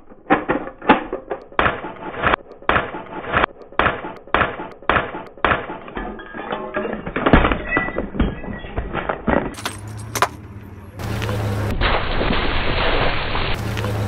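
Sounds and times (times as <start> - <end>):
car rolling over road: 5.8 - 14.0.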